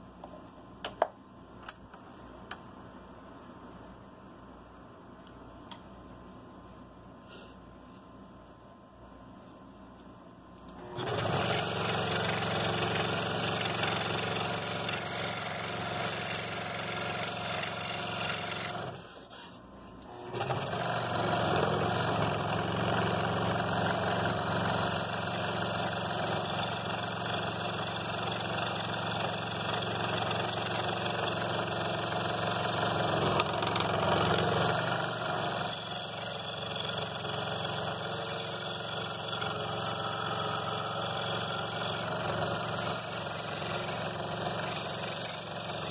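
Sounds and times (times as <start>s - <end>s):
scroll saw cutting wood: 10.8s - 45.9s.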